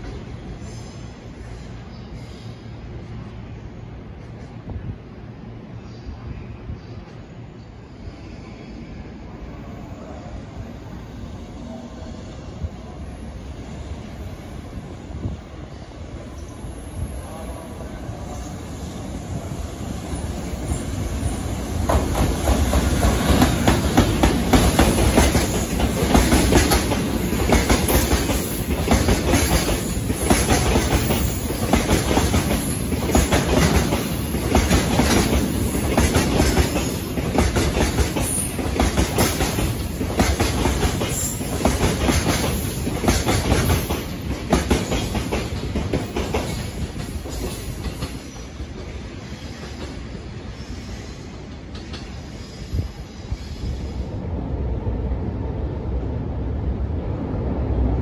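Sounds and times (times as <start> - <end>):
freight train rumble: 0.0 - 58.0
wheels clickety-clack on rail joints: 20.2 - 50.2, 51.4 - 52.6.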